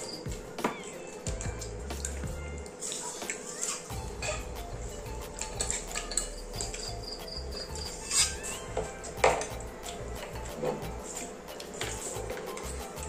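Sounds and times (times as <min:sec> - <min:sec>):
forks clinking on plates: 0:05.3 - 0:12.8.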